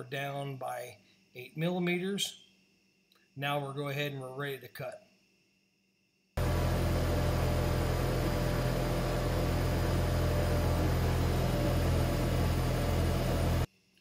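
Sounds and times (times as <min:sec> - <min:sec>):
laser engraver machine hum: 0:06.4 - 0:13.7.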